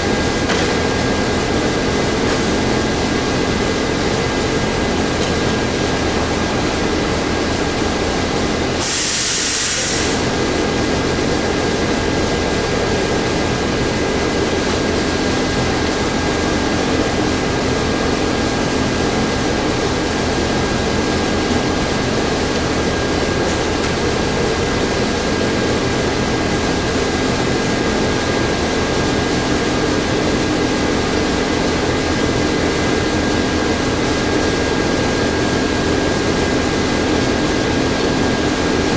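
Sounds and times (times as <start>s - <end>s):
short sharp hiss: 8.8s - 10.3s.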